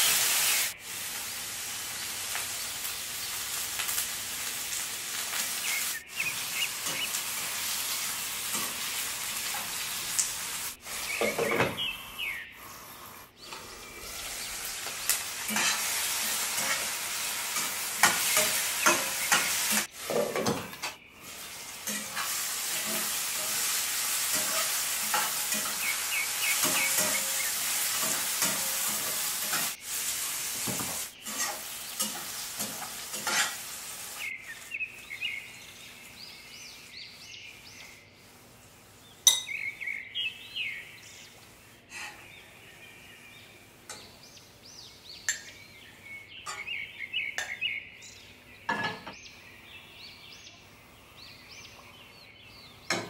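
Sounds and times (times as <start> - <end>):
food sizzling in hot oil: 0.0 - 36.9
birds chirping: 0.2 - 29.8, 30.6 - 53.0
spoon scraping a pan: 13.4 - 21.0, 21.8 - 29.8, 30.6 - 33.8, 41.9 - 42.4.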